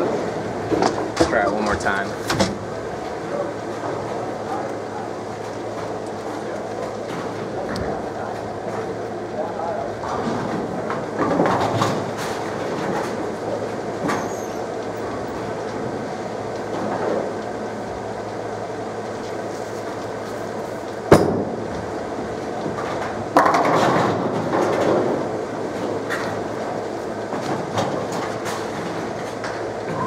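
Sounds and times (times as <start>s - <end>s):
bowling alley rumble: 0.0s - 30.0s
bowling ball rolling: 10.0s - 18.7s, 21.0s - 30.0s.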